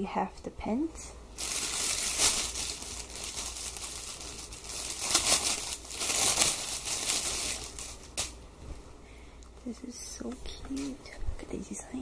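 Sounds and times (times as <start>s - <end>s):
plastic bag crinkling: 1.4s - 8.4s.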